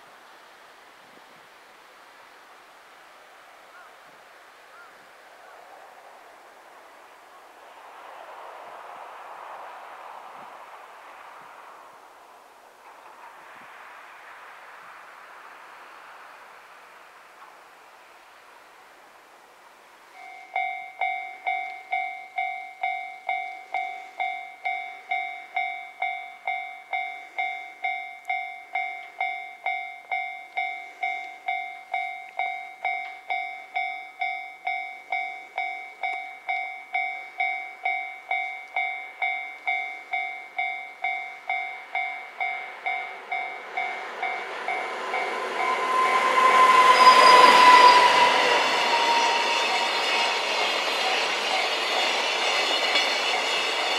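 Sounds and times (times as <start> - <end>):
train wheels on rails: 6.4 - 19.0, 19.9 - 53.9
brief high tone: 41.2 - 53.9.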